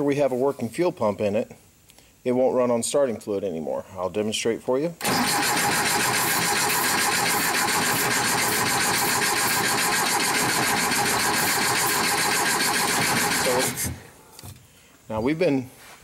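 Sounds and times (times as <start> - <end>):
engine cranked by starter: 5.0 - 14.0.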